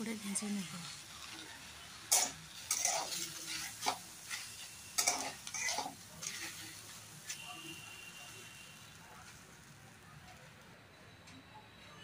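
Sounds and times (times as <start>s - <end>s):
faint sizzle: 0.0s - 12.0s
spatula scraping a pan: 2.1s - 7.6s.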